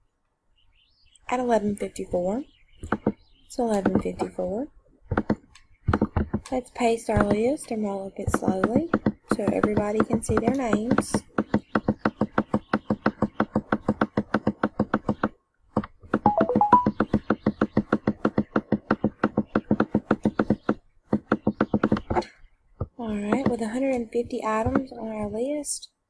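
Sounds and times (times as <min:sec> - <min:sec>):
mouse button clicking rapidly: 0:16.2 - 0:17.9.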